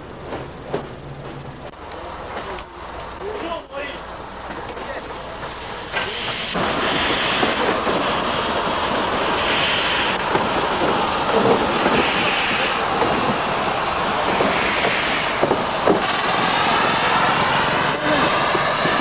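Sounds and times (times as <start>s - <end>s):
clanking running gear and wheels: 0.1s - 8.0s
steam hissing: 3.1s - 19.0s.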